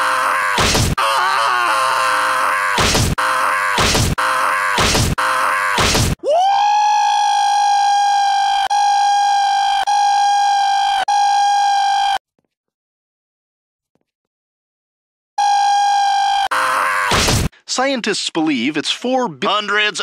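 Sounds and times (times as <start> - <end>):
harsh stuttering noise: 2.6 - 6.2.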